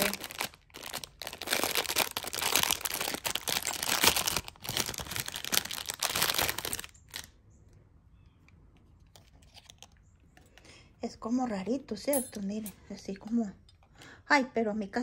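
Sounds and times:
packaging crinkling and rustling: 0.0s - 7.4s.

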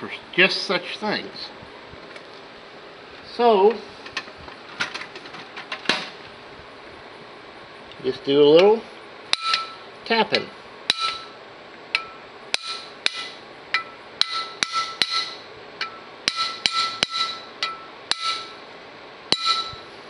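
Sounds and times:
hammer tapping metal punch: 9.3s - 9.8s, 10.9s - 18.6s, 19.3s - 19.9s.

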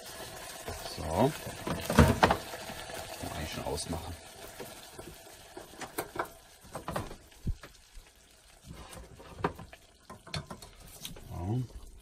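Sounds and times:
metal pot clicks and knocks: 5.6s - 7.7s, 9.3s - 10.8s.

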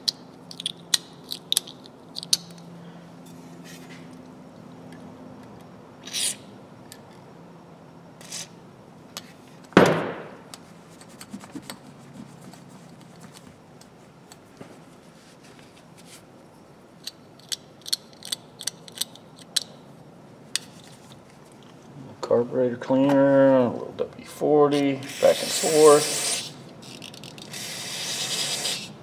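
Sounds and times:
ratchet clicking: 26.3s - 28.9s.

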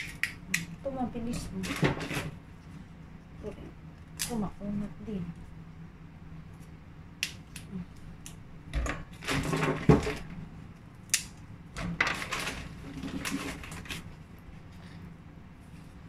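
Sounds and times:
mushroom stalks snapping: 0.0s - 0.8s, 4.0s - 4.5s, 7.2s - 8.4s, 11.0s - 11.5s.

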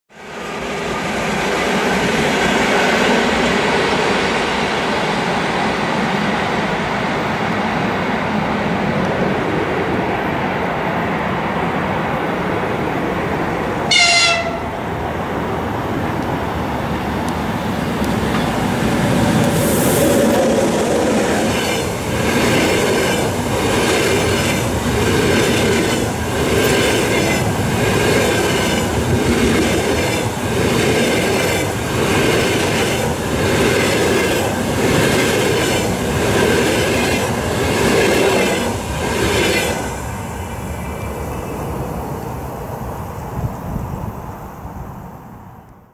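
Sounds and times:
train wheels rumbling on rails: 0.1s - 45.1s.

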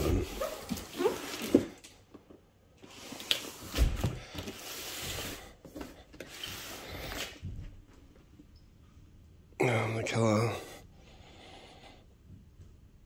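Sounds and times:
cardboard box scraping on table: 0.0s - 1.8s.

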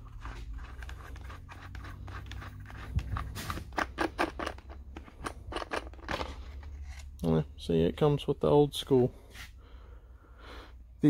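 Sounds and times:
plastic scraping: 0.0s - 7.2s.

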